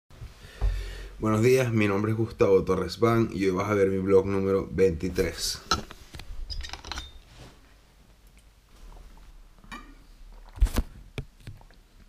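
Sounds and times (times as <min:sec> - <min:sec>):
sipping and swallowing water: 0:10.2 - 0:12.0.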